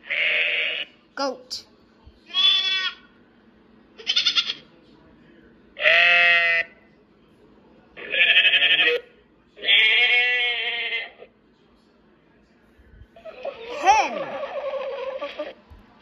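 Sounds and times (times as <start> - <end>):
recorded goat bleats: 0.0 - 0.9, 2.3 - 3.0, 4.0 - 4.6, 5.8 - 6.7, 8.0 - 9.0, 9.6 - 11.3.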